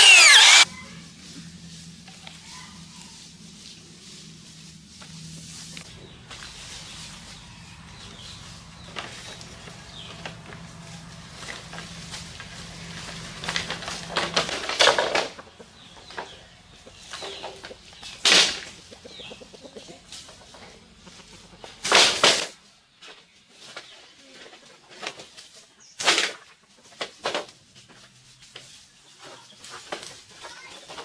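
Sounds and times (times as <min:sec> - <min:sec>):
bamboo poles rustling and scraping: 0:00.0 - 0:31.0.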